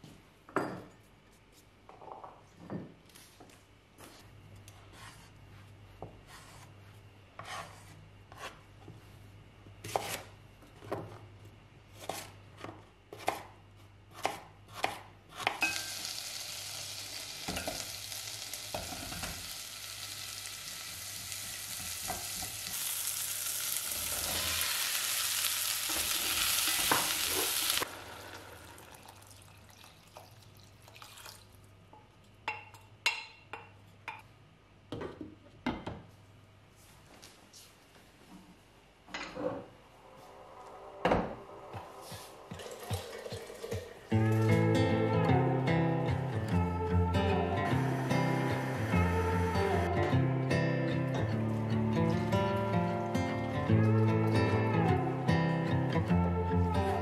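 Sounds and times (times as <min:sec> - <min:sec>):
shallots sizzling in hot pot: 0:15.6 - 0:29.4.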